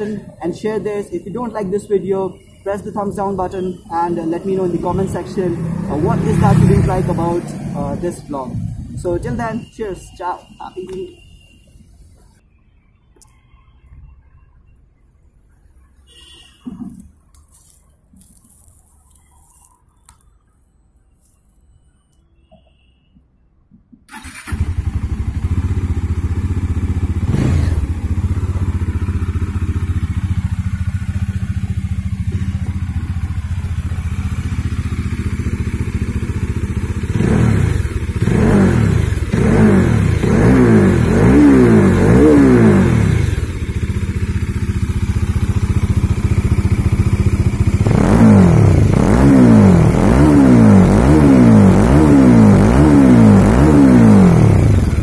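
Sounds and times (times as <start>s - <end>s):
quick throttle blips: 24.1s - 26.2s
motorcycle engine idling: 24.1s - 55.0s.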